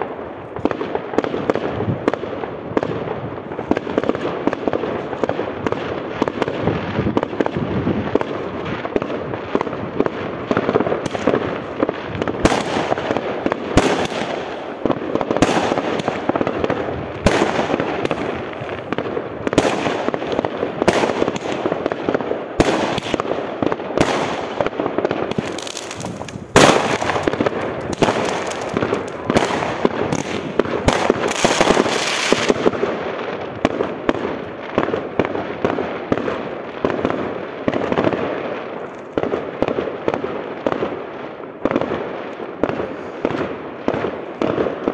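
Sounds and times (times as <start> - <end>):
fireworks bangs and crackles: 0.0 - 44.9.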